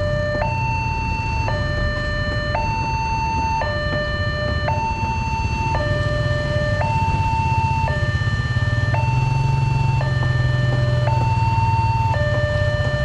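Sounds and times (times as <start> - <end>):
level crossing two-tone alarm: 0.0 - 13.0
low rumble of engines: 0.0 - 13.0.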